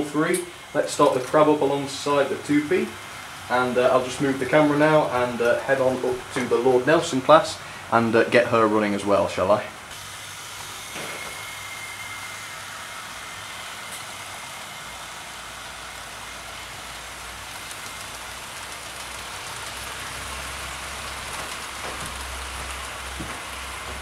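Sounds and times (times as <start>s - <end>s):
model train wheels rolling: 0.0s - 9.3s, 10.0s - 24.0s.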